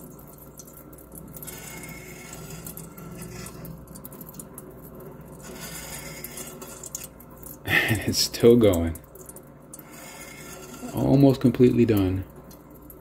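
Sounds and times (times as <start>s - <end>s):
oil crackling and spitting: 0.4s - 8.0s
stirrer motor hum: 1.2s - 7.4s, 9.5s - 11.4s.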